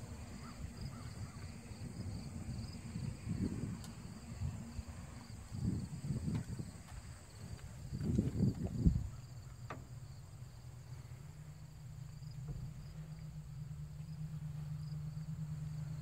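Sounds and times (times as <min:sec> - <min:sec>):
crickets chirping: 0:00.0 - 0:16.0
low steady hum: 0:00.0 - 0:16.0
low thumps: 0:05.6 - 0:15.4.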